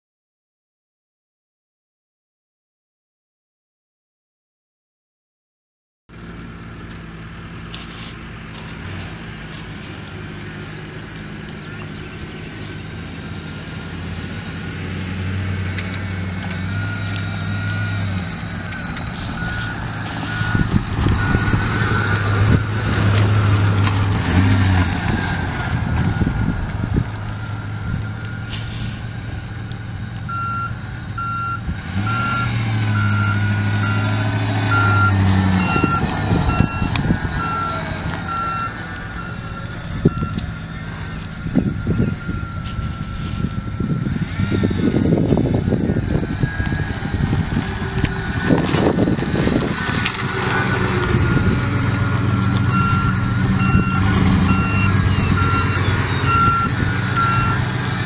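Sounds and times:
truck engine running: 0:06.1 - 0:58.0
backup alarm beeping: 0:18.9 - 0:22.2, 0:30.3 - 0:44.7, 0:52.4 - 0:57.7.

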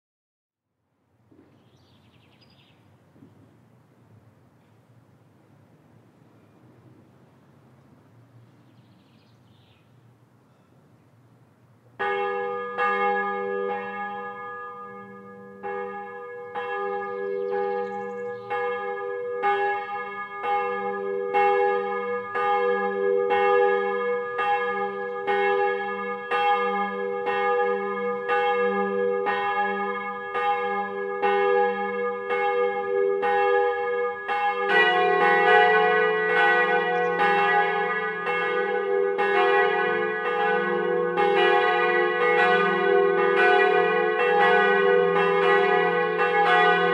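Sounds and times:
church bells ringing: 0:12.0 - 0:46.9.

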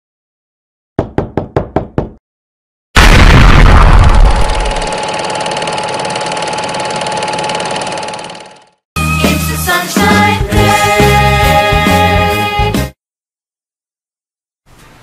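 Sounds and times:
loud boom: 0:03.0 - 0:05.0.

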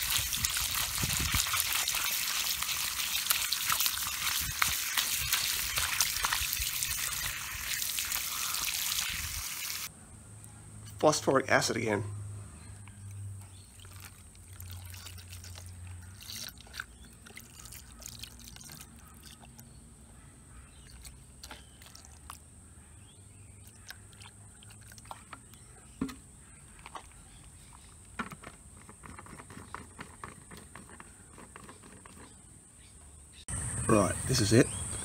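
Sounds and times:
liquid pouring and splashing: 0:00.0 - 0:09.9, 0:13.5 - 0:19.7, 0:20.8 - 0:22.4, 0:23.6 - 0:27.2
sharp splashes or knocks: 0:00.0 - 0:09.9.

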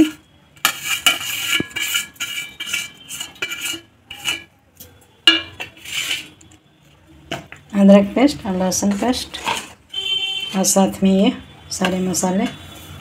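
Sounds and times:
metal utensil scraping steel: 0:00.0 - 0:06.6, 0:08.6 - 0:09.9.

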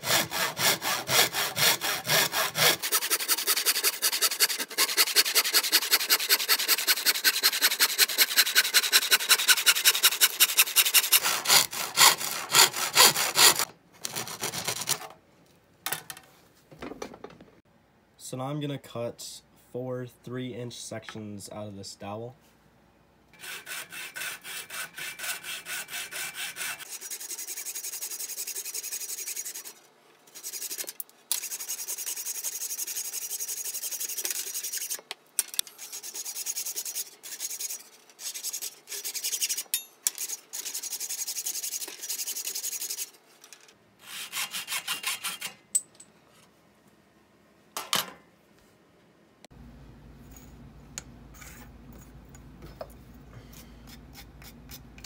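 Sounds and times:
hacksaw cutting wood: 0:00.0 - 0:15.1, 0:23.4 - 0:29.7, 0:44.0 - 0:45.6.

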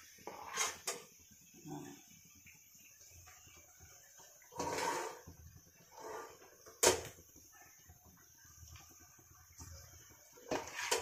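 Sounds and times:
utensil scraping pan: 0:00.2 - 0:01.1, 0:04.5 - 0:07.0, 0:10.4 - 0:11.0.

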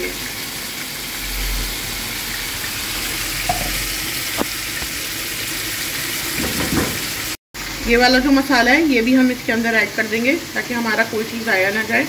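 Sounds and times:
paste sizzling in hot oil: 0:00.0 - 0:12.0.

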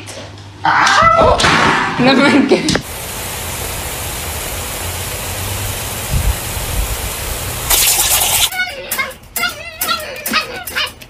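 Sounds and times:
lawn sprinkler spraying water: 0:02.8 - 0:08.5.

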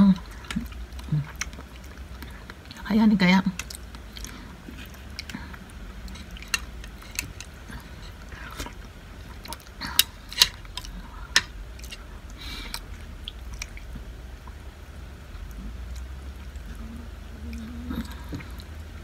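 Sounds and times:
mouth eating sounds: 0:00.0 - 0:11.2, 0:15.2 - 0:19.0
steady low hum: 0:00.0 - 0:19.0.

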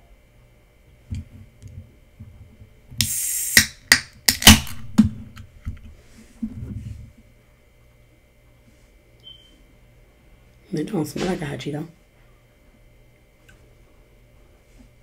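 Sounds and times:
pull tab clicks and cracks: 0:03.6 - 0:05.5.

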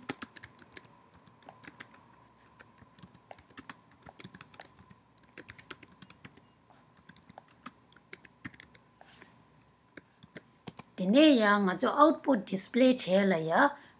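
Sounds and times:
faint high hum: 0:00.0 - 0:13.9.

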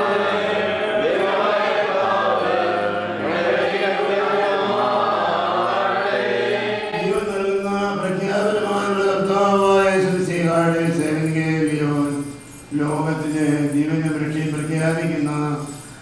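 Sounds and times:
voices singing slow chant: 0:00.0 - 0:07.4.

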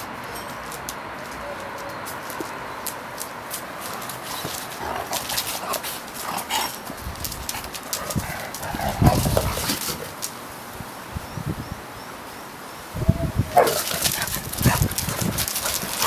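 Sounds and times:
claws clicking on concrete: 0:00.0 - 0:10.4, 0:13.6 - 0:16.0
dogs scuffling: 0:00.2 - 0:10.4, 0:13.6 - 0:16.0
dogs play-growling: 0:03.9 - 0:10.2, 0:13.6 - 0:16.0.

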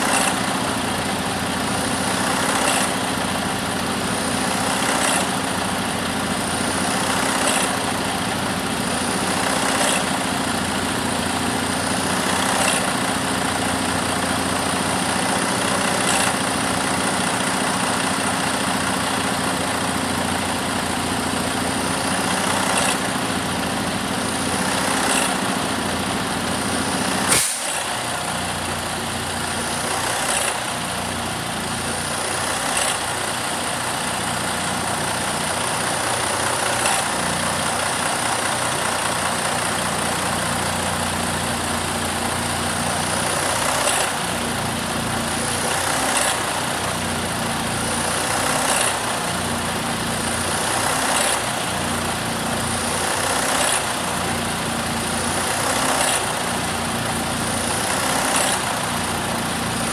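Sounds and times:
diesel engine idling: 0:00.0 - 0:59.9
short hiss: 0:27.3 - 0:27.9.

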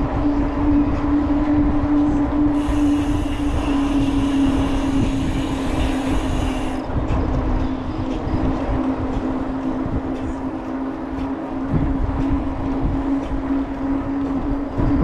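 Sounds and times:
wind buffeting microphone: 0:00.0 - 0:15.0
higher hiss: 0:02.6 - 0:06.8.

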